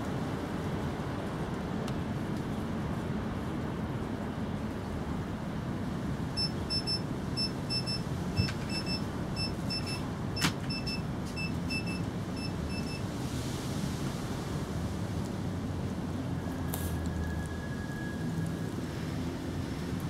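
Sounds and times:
short high electronic beeps: 6.4 - 10.0.

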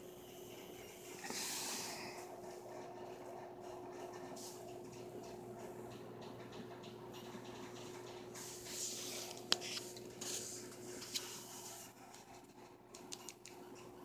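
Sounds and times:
steady low hum: 0.0 - 14.0
rustling and handling noise: 8.3 - 13.5.

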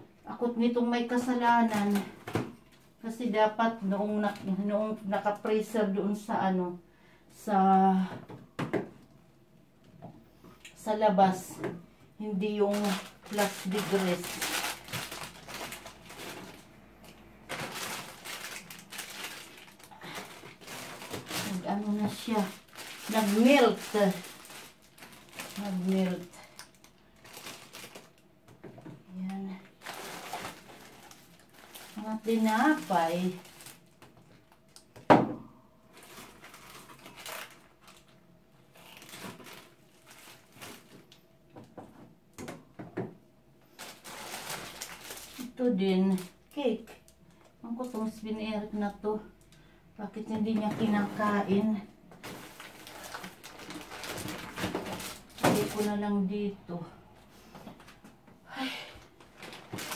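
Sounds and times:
plastic bag crinkling: 1.1 - 2.2, 12.3 - 28.3, 29.4 - 34.9, 35.9 - 41.2, 43.6 - 48.2, 50.6 - 56.2, 59.0 - 59.9
frozen food packages rustling: 12.3 - 35.1, 35.8 - 41.5, 43.6 - 48.2, 50.2 - 56.4, 58.9 - 59.9.

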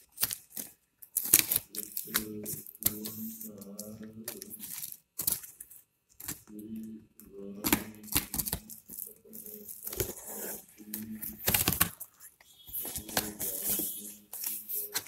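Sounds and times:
cardboard rustling and scraping: 8.2 - 15.0.

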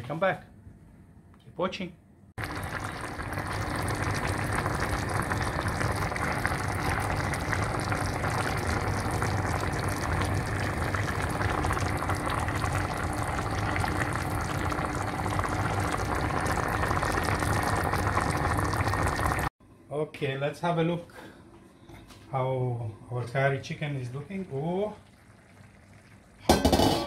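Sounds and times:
curry bubbling in a pan: 2.4 - 19.5, 24.3 - 26.9.

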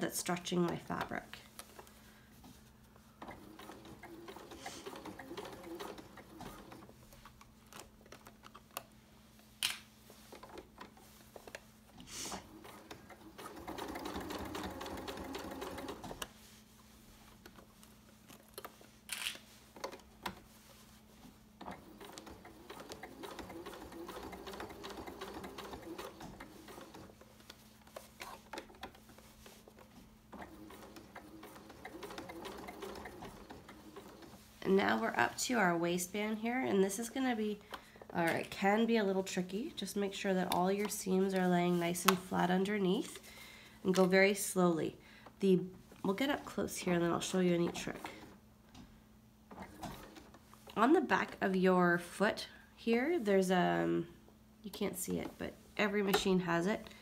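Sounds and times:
sewing machine stitching: 3.2 - 6.9, 12.3 - 16.3, 21.6 - 27.2, 30.3 - 35.2, 49.5 - 50.4.

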